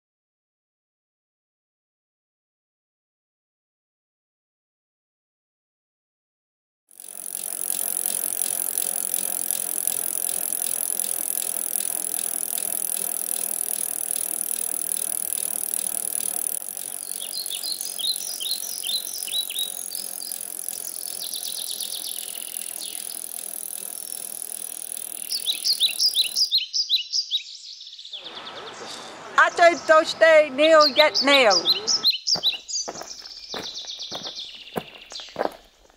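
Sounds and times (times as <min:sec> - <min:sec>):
bicycles riding on pavement: 0:06.9 - 0:26.5
bicycle bell ringing: 0:07.0 - 0:26.5.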